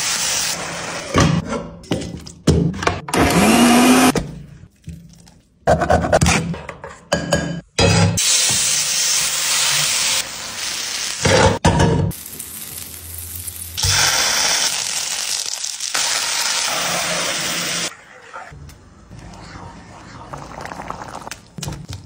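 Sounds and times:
butter sizzling in a frying pan: 0:12.1 - 0:17.2.

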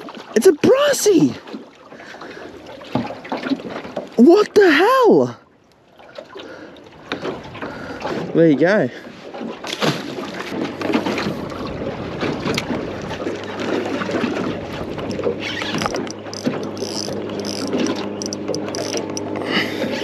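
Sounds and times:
water noise: 0:00.0 - 0:20.0
wind: 0:00.0 - 0:20.0
steady low hum: 0:12.7 - 0:20.0.

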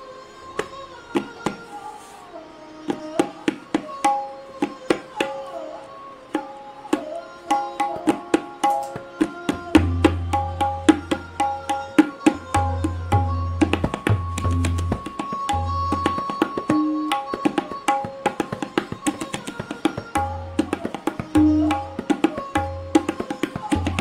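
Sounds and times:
rapid crisp tabla strokes: 0:00.6 - 0:02.2, 0:02.9 - 0:05.7, 0:06.3 - 0:24.0.

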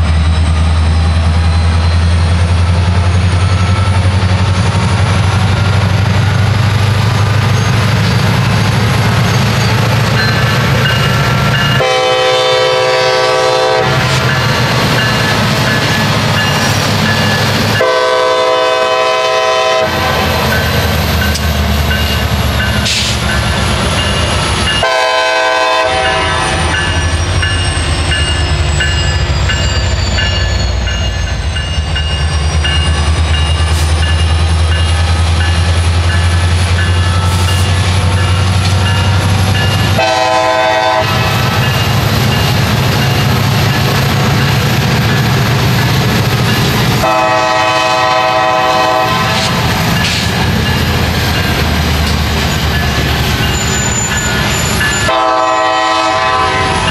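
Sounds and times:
diesel engines rumbling: 0:00.0 - 0:56.9
crossing signal bell ringing: 0:09.3 - 0:18.2, 0:20.4 - 0:45.4, 0:47.9 - 0:56.9
locomotive air horn blasts: 0:11.7 - 0:14.3, 0:17.8 - 0:20.5, 0:24.8 - 0:26.6, 0:40.0 - 0:41.4, 0:47.0 - 0:49.7, 0:55.1 - 0:56.9.

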